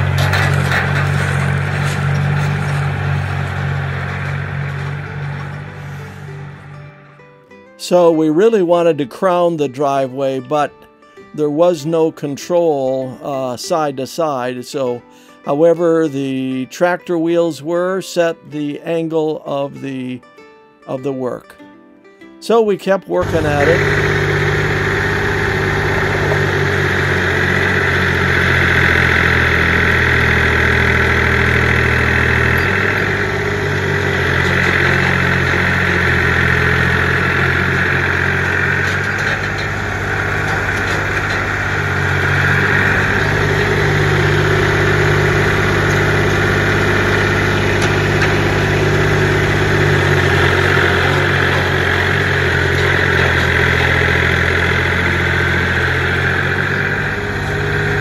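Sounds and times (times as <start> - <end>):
tractor diesel engine running: 0.0 - 10.7, 23.2 - 58.0
steady high whine: 23.2 - 58.0.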